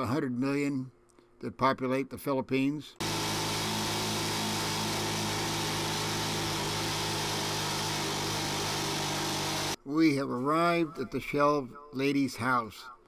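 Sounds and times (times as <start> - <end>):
small motorcycle engine running: 3.0 - 9.8.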